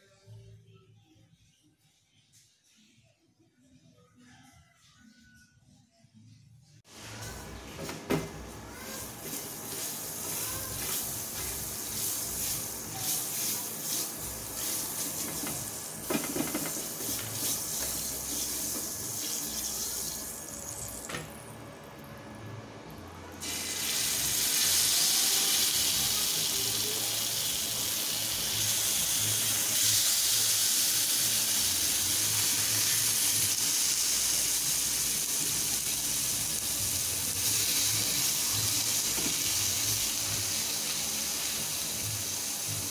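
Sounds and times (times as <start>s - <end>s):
skewers sizzling on grill pan: 8.6s - 21.1s, 23.4s - 42.9s
margarine sizzling in pan: 8.7s - 21.0s, 23.4s - 42.9s.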